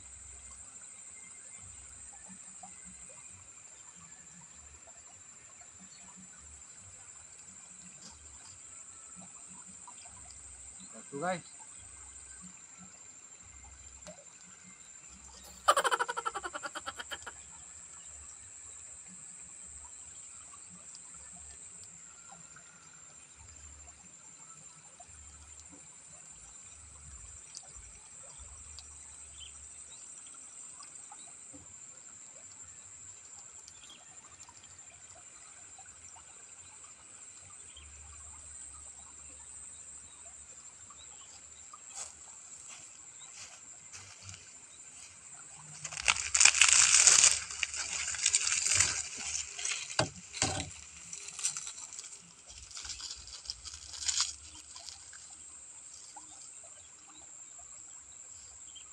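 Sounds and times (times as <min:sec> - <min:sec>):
water trickling in channel: 0:00.0 - 0:58.9
rustling of dry straw and grass: 0:41.9 - 0:56.2.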